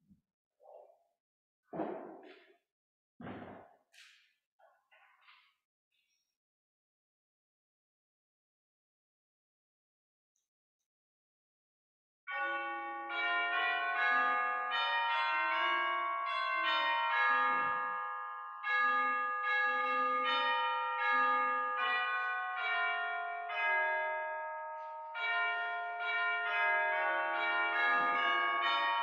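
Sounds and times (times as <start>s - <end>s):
church bells ringing: 12.3s - 29.0s.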